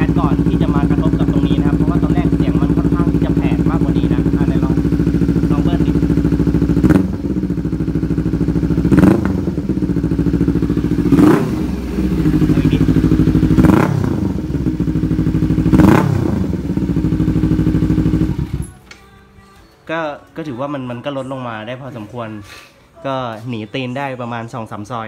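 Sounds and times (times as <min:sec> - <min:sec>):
motorcycle engine idling and revving: 0:00.0 - 0:18.8.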